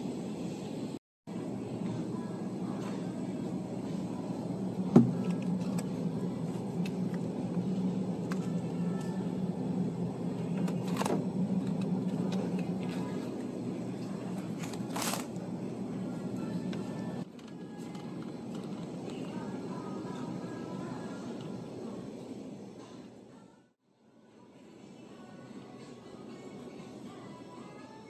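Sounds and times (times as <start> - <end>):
low hum of freezers: 0.0 - 28.0
plastic packs rustling: 14.5 - 15.3.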